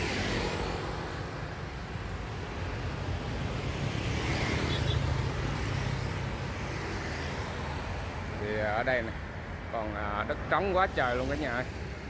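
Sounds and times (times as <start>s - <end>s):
road traffic rumble: 0.0s - 12.0s.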